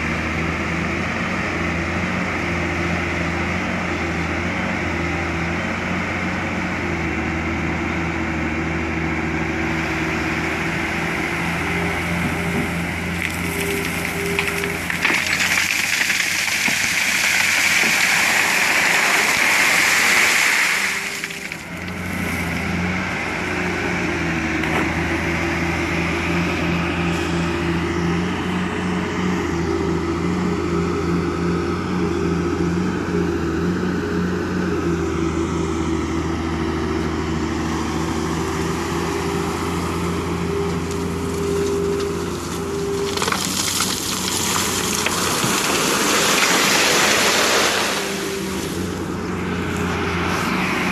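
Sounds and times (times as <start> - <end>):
diesel engine running: 0.0 - 50.9
gravel pouring into steel truck bed: 13.2 - 21.8, 43.0 - 48.7.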